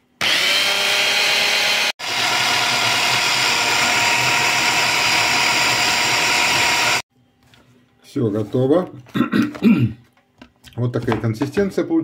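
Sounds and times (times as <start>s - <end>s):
hand blender motor running: 0.2s - 7.0s.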